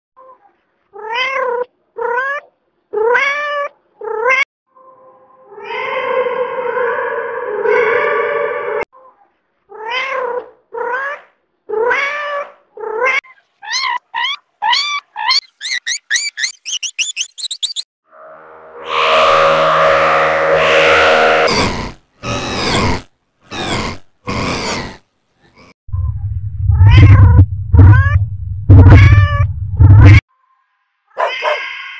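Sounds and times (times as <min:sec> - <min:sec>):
loud low rumble: 0:25.9 - 0:30.2
cat meowing: 0:31.1 - 0:31.9.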